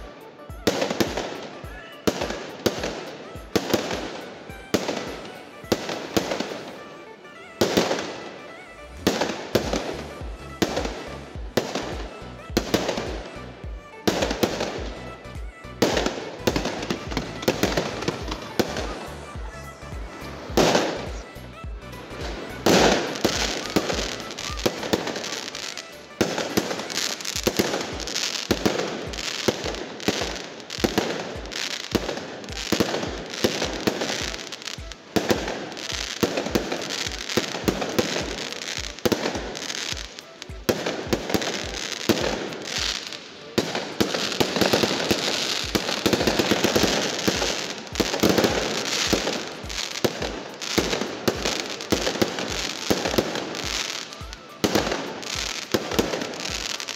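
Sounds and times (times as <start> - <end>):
fireworks bangs and crackle: 0.0 - 8.3, 9.0 - 56.9.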